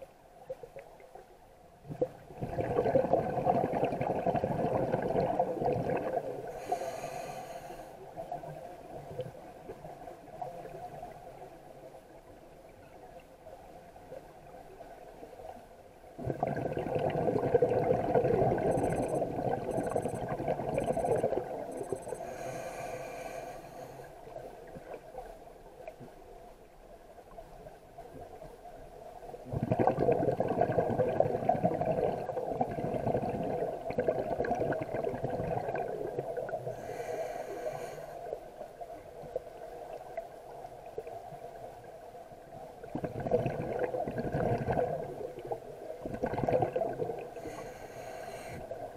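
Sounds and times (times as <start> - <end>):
underwater exhalation bubbling: 1.9 - 7.2, 16.2 - 22.7, 29.4 - 37.1, 42.8 - 47.8
regulator inhales: 6.5 - 8.0, 21.8 - 24.2, 36.7 - 38.4, 47.3 - 48.8.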